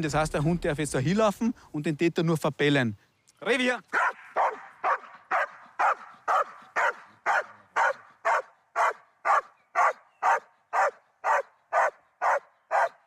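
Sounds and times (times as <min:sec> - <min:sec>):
dog barking: 0:03.9 - 0:13.0.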